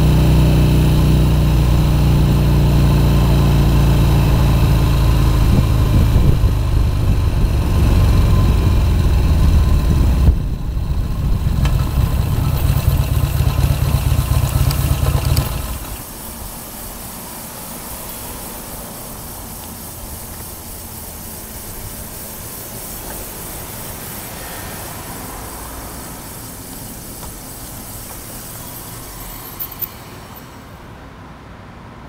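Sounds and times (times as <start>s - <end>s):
motorcycle engine running slowly: 0.0s - 16.4s.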